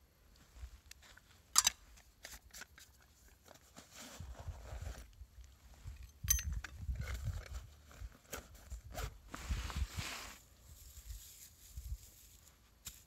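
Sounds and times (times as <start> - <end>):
crunchy clicks and rustles: 0.4 - 9.2.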